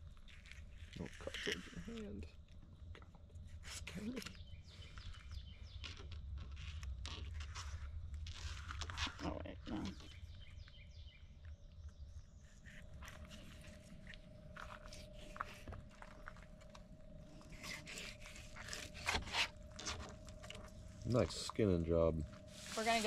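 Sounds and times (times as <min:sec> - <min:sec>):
knife cutting through fish: 0:17.4 - 0:20.1.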